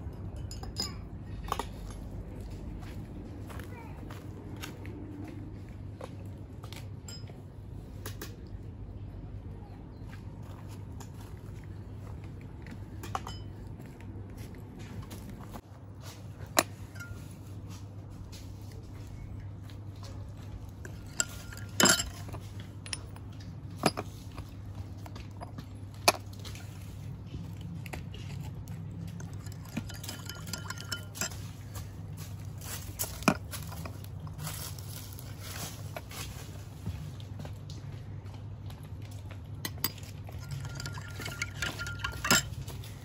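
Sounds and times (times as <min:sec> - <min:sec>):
low steady hum: 0:00.0 - 0:43.0
spoon clinking on ceramic: 0:20.8 - 0:23.2, 0:29.2 - 0:31.5, 0:39.7 - 0:43.0.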